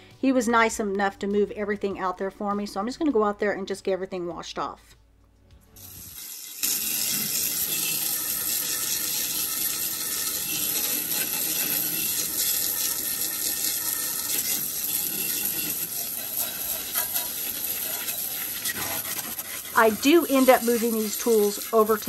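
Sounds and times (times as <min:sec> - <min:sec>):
hose spraying water: 0:05.8 - 0:22.0.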